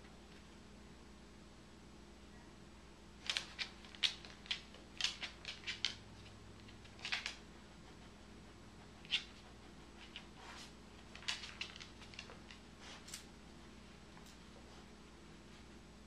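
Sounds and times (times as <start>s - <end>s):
dog claws clicking on wooden floor: 3.2s - 7.4s, 11.0s - 13.3s.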